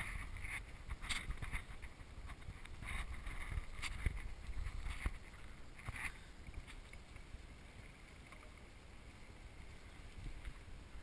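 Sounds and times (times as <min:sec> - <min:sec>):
wind rumble on microphone: 0:00.0 - 0:07.9.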